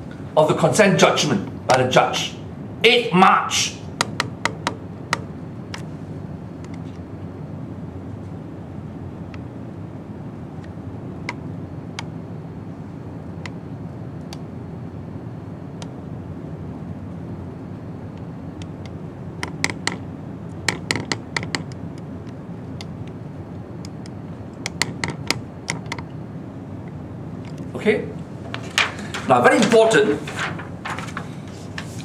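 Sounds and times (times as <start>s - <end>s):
paper crinkling: 28.4s - 32.0s.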